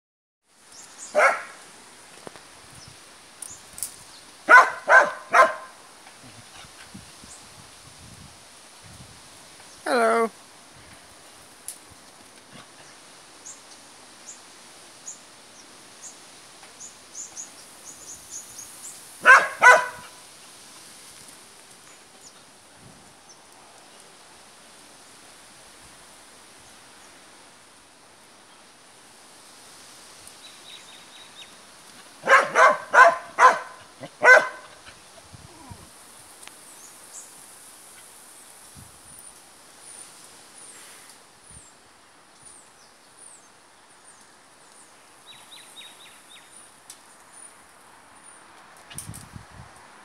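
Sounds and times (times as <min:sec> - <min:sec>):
dog barking: 0:01.2 - 0:01.6, 0:04.5 - 0:05.8, 0:19.2 - 0:20.2, 0:32.2 - 0:34.7.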